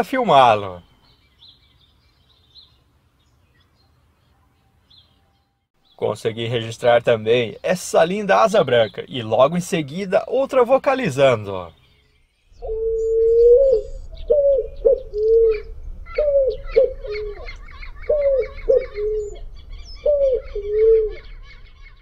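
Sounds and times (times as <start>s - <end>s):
small birds chirping: 0.2s - 22.0s
pigeon cooing: 12.6s - 22.0s.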